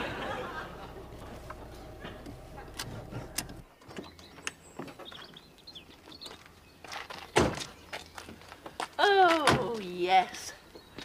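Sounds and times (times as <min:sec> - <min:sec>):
car interior hum: 0:00.0 - 0:03.7
faint birdsong: 0:00.0 - 0:09.0, 0:09.8 - 0:11.0
car door shutting: 0:01.2 - 0:03.7
door clicks: 0:02.1 - 0:04.6.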